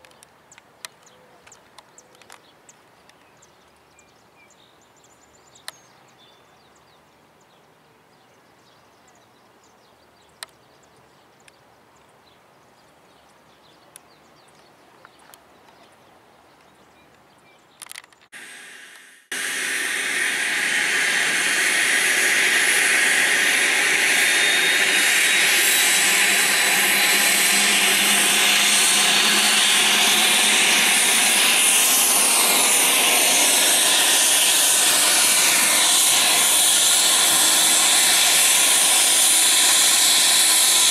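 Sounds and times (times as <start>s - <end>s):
helicopter turbine engine hiss: 18.4s - 40.9s.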